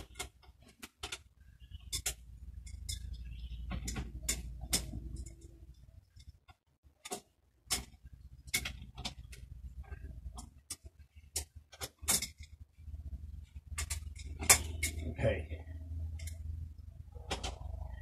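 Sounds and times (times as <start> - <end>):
low steady background hum: 0.0 - 18.0.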